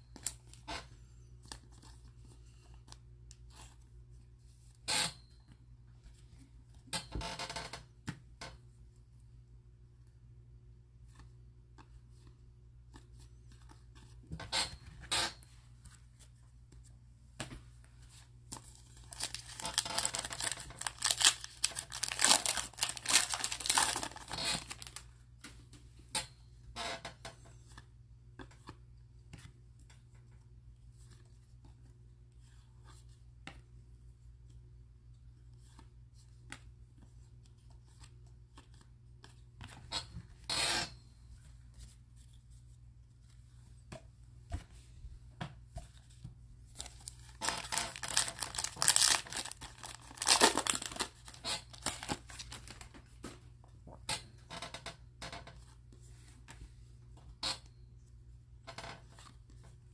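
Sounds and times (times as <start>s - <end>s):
cards being flipped through: 15.8s - 25.8s, 45.8s - 53.4s
card pack wrapper tearing: 18.9s - 25.0s, 46.8s - 52.9s.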